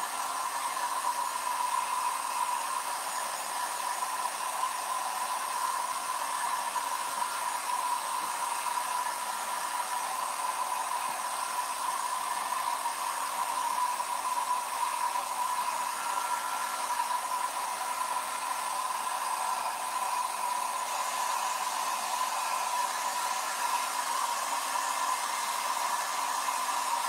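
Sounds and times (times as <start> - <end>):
hot-air blower whooshing: 13.4 - 27.0.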